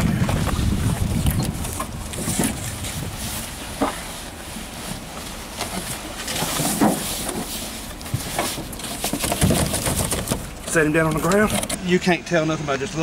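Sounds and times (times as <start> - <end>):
stiff plastic sheet rustling: 0.4 - 11.8
handling bumps: 5.6 - 11.8.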